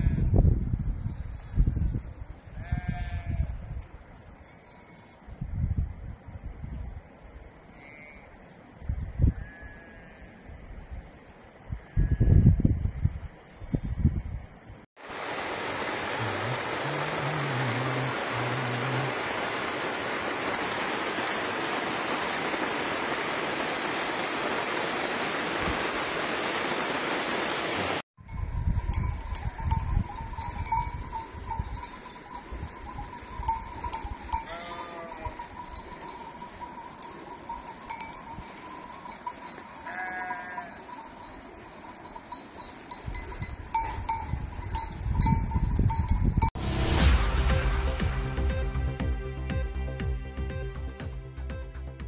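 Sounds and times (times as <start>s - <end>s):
wind buffeting microphone: 0.0s - 4.0s, 5.3s - 7.2s, 10.6s - 14.8s, 28.2s - 34.4s, 43.0s - 46.6s
sheep bleating: 2.6s - 3.5s, 9.4s - 10.3s, 34.5s - 35.5s, 39.8s - 40.8s
sheep bells ringing: 28.2s - 46.6s.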